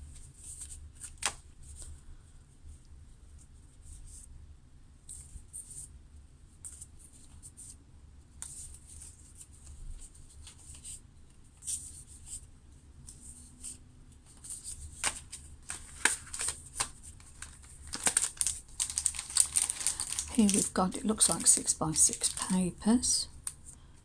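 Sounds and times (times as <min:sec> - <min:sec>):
cards rustling and clicking: 0:00.4 - 0:01.9, 0:13.1 - 0:22.7.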